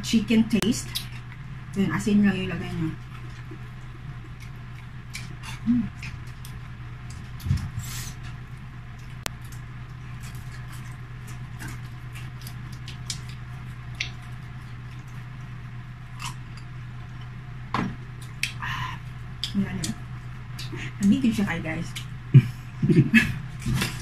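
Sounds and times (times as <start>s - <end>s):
steady low hum: 0.0s - 24.0s
people chewing food: 0.5s - 21.3s, 21.9s - 24.0s
lip smacking: 18.4s - 18.7s.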